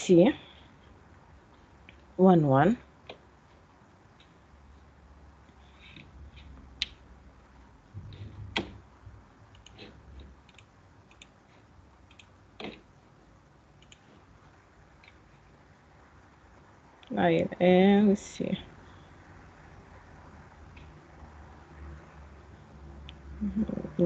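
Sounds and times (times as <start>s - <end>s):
faint low hum: 0.0s - 24.0s
computer mouse clicks: 9.5s - 11.4s, 12.1s - 12.8s, 13.8s - 14.1s.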